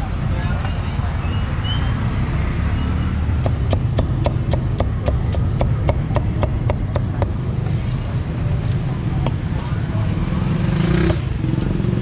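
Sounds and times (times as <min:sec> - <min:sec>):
cleaver chopping on wooden block: 0:03.4 - 0:07.4.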